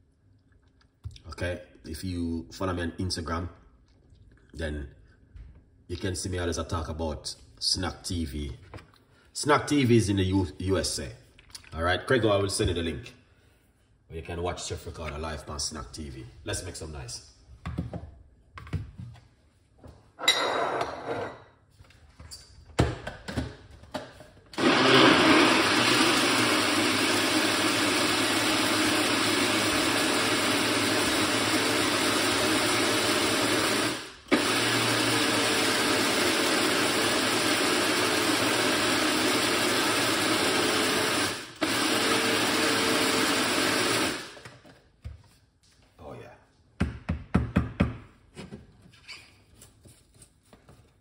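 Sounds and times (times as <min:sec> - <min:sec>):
blender running: 0:24.6 - 0:44.5.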